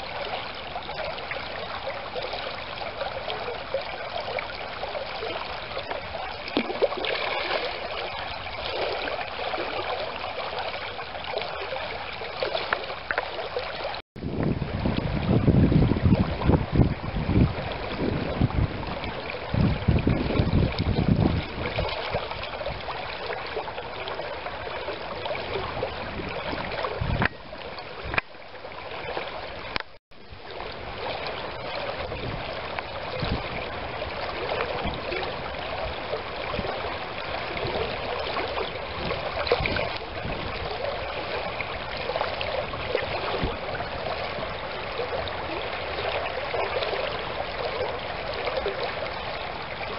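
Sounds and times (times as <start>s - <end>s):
stream rushing over riffle: 0.0s - 49.9s
wind gusts on microphone: 14.2s - 23.6s, 24.4s - 49.9s.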